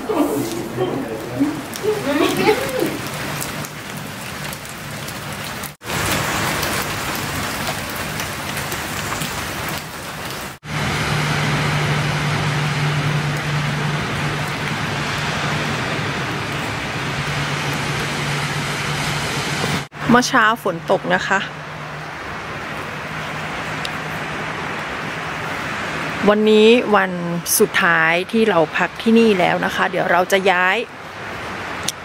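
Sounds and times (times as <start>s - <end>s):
rain spattering on concrete: 0.0s - 20.0s
low hum: 10.7s - 19.8s.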